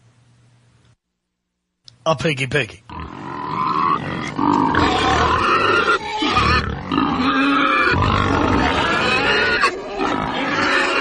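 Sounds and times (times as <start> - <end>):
pig grunting and squealing: 2.9 - 11.0.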